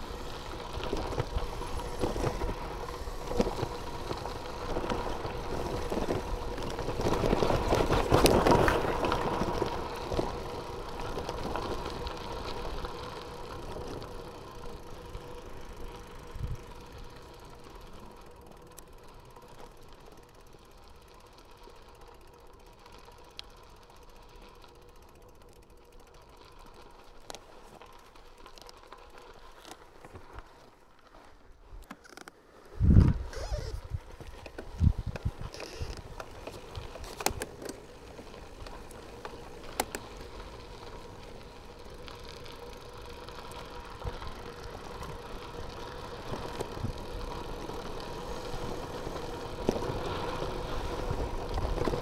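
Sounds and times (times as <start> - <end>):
bicycle tyres on gravel: 0.0 - 52.0
wind noise: 16.3 - 16.7, 32.7 - 37.0.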